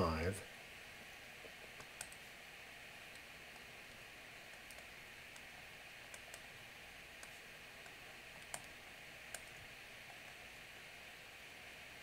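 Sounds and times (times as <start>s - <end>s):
steady low hiss: 0.0s - 12.0s.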